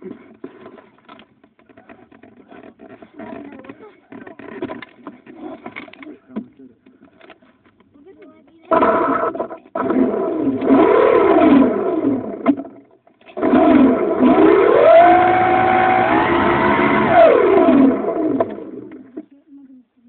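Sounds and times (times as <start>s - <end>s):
model airplane motor running: 8.7s - 19.2s.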